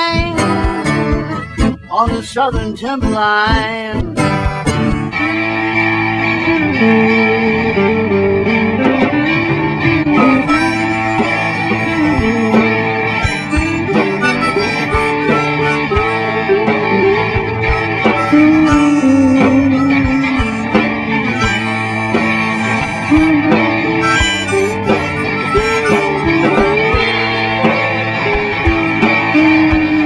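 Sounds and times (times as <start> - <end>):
blues-rock lead guitar with bends: 0.0 - 30.0
drums: 0.0 - 30.0
electric guitar: 0.0 - 30.0.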